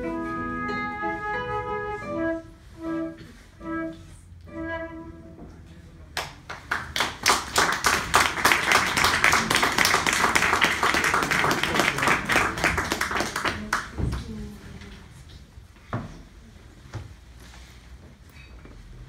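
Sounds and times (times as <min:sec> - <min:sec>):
flute and guitar playing: 0:00.0 - 0:05.4
audience applause: 0:06.2 - 0:14.0.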